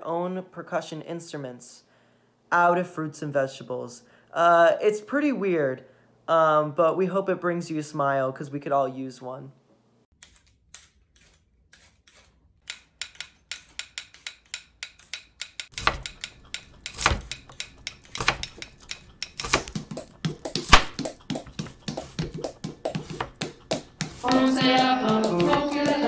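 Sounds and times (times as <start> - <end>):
peeler scraping carrot: 10.2 - 23.4, 24.0 - 26.0
vegetable percussion groove: 12.7 - 26.0
knife chopping on cutting board: 15.1 - 26.0.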